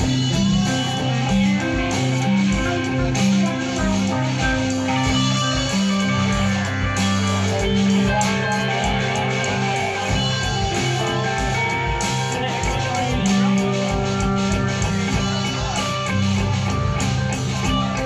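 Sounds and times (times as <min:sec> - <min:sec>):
electric guitars: 0:00.0 - 0:18.0
low bass line: 0:00.0 - 0:18.0
steady drum beat: 0:00.0 - 0:18.0.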